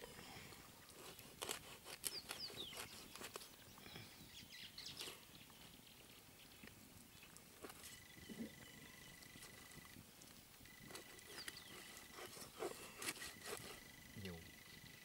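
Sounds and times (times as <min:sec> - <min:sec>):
knife cutting carcass: 0:01.0 - 0:03.5, 0:10.9 - 0:13.9.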